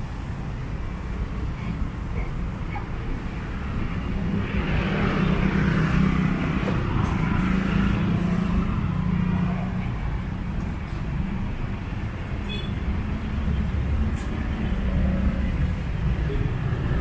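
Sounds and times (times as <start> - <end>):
vehicles passing: 0.0 - 17.0.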